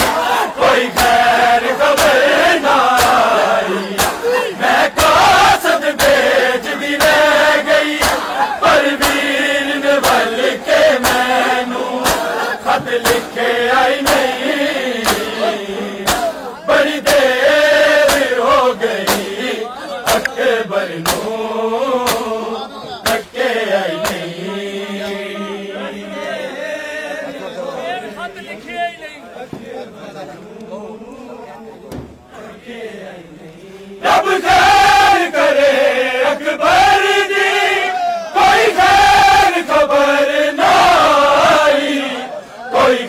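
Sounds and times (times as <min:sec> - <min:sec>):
men chanting in unison: 0:00.0 - 0:43.0
chest-beating slaps: 0:00.8 - 0:04.4, 0:05.9 - 0:06.4, 0:07.0 - 0:07.3, 0:07.9 - 0:08.4, 0:09.0 - 0:09.3, 0:10.0 - 0:10.3, 0:10.9 - 0:11.4, 0:12.0 - 0:13.4, 0:14.0 - 0:14.4, 0:15.0 - 0:15.4, 0:16.0 - 0:16.4, 0:17.0 - 0:17.4, 0:18.0 - 0:18.4, 0:19.0 - 0:19.4, 0:20.0 - 0:20.4, 0:21.0 - 0:21.4, 0:22.0 - 0:22.4, 0:23.0 - 0:23.4, 0:24.0 - 0:24.4.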